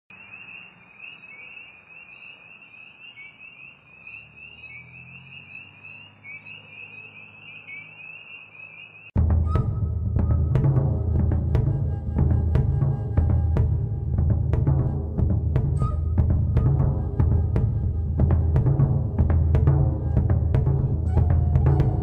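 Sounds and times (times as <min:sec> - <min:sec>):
trilling animal calls: 0:00.1 - 0:09.8.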